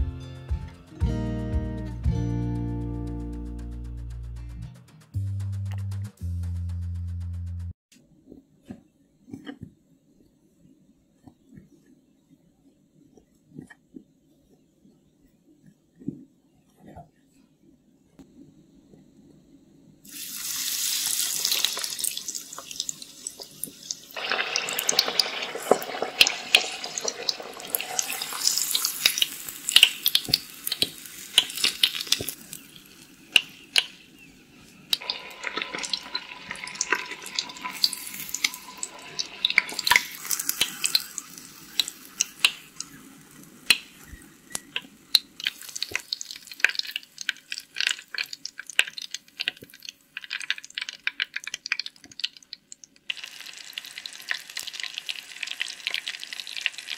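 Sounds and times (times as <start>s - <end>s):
water running from tap: 20.1s - 33.0s, 34.9s - 43.0s, 44.5s - 50.8s.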